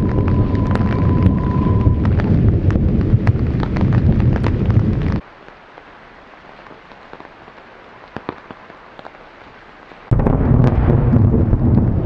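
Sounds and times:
loud thunder rumble: 0:00.0 - 0:05.2, 0:10.1 - 0:12.0
rain hiss: 0:00.0 - 0:12.0
sharp crackles: 0:00.0 - 0:12.0.

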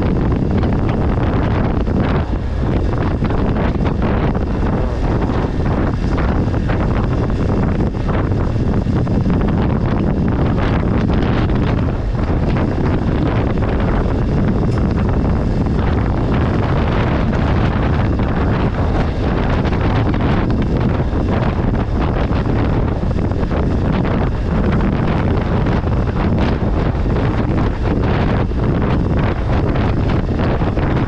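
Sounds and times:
motorcycle engine rumble: 0:00.0 - 0:31.0
wind buffeting microphone: 0:00.0 - 0:31.0.

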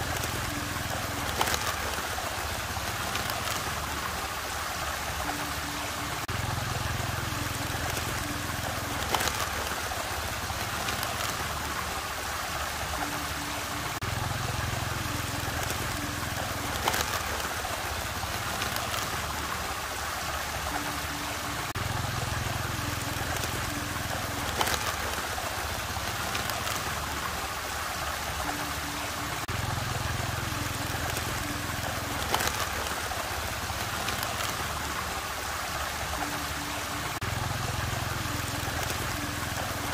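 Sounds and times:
water swirling in a whirlpool: 0:00.0 - 0:39.9.

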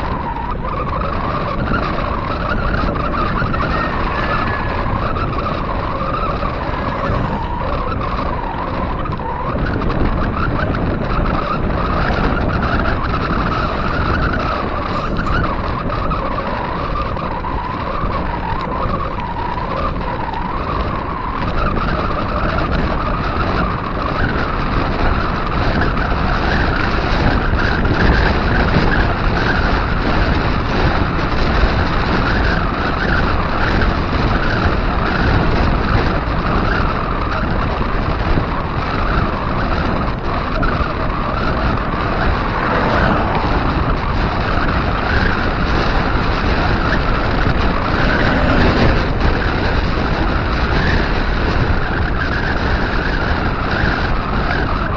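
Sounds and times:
wavering mid-pitched hum: 0:00.0 - 0:20.4, 0:35.2 - 0:54.9
tyres humming on asphalt: 0:00.0 - 0:54.9
wind rushing over microphone: 0:00.0 - 0:54.9.

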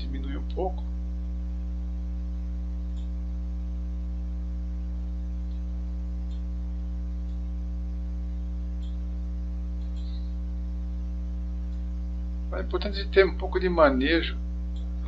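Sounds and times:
electrical mains hum: 0:00.0 - 0:15.0
faint clicks: 0:05.4 - 0:06.6, 0:08.7 - 0:09.1, 0:09.7 - 0:10.4, 0:14.7 - 0:15.0.

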